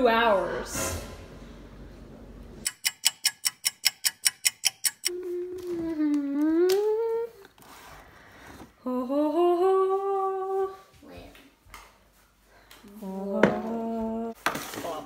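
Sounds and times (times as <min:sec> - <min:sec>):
short ringing ticks: 0:02.7 - 0:05.1
person humming: 0:05.1 - 0:07.5, 0:08.8 - 0:10.8, 0:12.9 - 0:14.4.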